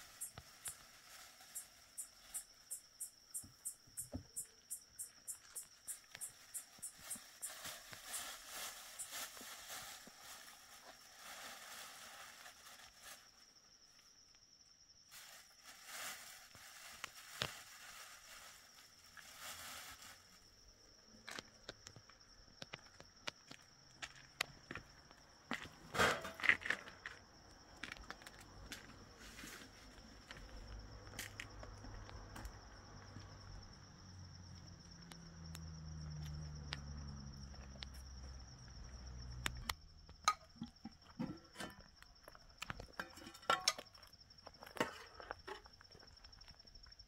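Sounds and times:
crickets chirping: 0:00.0 - 0:47.0
footsteps: 0:27.8 - 0:33.3.

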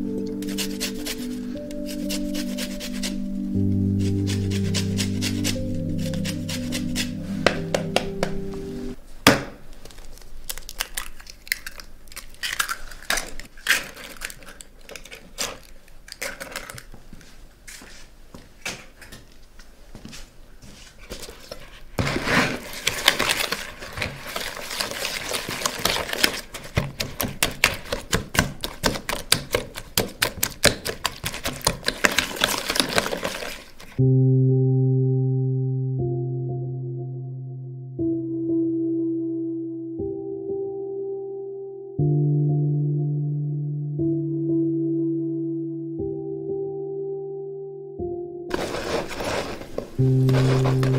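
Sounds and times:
utensil tapping bowl beating eggs: 0:22.8 - 0:34.0.

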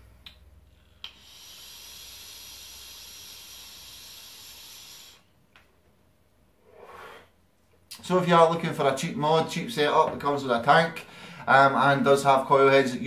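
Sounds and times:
airy vape hiss: 0:00.8 - 0:05.4.

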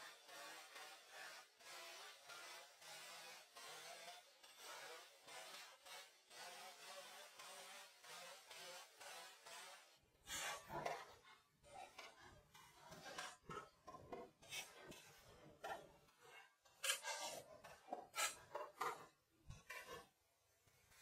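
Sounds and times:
faint scraping and rubbing: 0:09.0 - 0:21.0.

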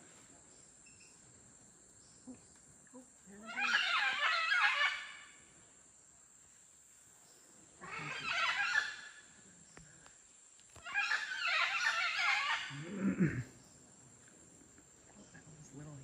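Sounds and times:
monkeys calling: 0:03.4 - 0:05.3, 0:07.8 - 0:09.3, 0:10.8 - 0:13.4.

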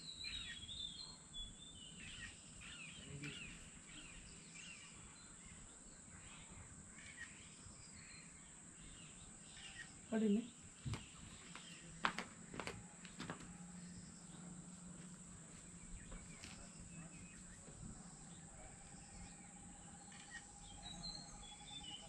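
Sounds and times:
birds chirping: 0:00.0 - 0:22.0
high-pitched insect hum: 0:13.7 - 0:22.0.

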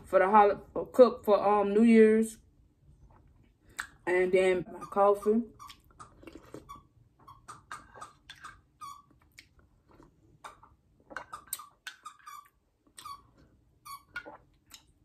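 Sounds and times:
person slurping from spoon: 0:06.0 - 0:06.8.

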